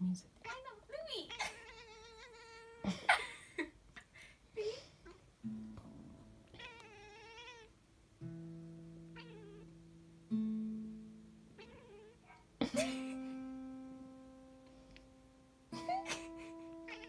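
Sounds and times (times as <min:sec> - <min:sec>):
cat yowling: 0:01.3 - 0:03.0, 0:06.5 - 0:07.7, 0:09.2 - 0:09.7, 0:11.6 - 0:12.5, 0:16.0 - 0:17.0.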